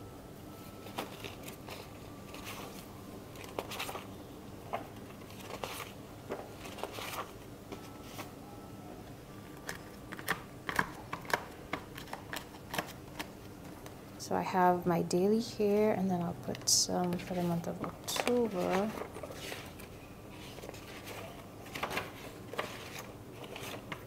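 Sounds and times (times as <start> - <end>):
paper pages rustling: 0.8 - 4.1, 4.7 - 8.3, 9.6 - 13.9, 16.6 - 24.0.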